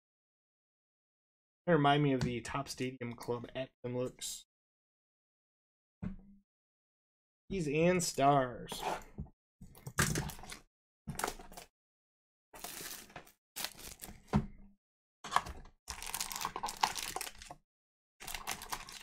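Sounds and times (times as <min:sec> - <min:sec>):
plastic wrapper crinkling and tearing: 0:12.6 - 0:14.2, 0:15.9 - 0:17.6, 0:18.2 - 0:19.0.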